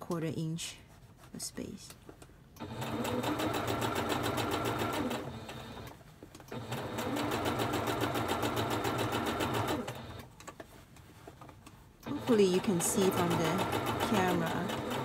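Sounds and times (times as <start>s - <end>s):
sewing machine running: 2.6s - 5.9s, 6.5s - 10.3s, 12.0s - 15.0s.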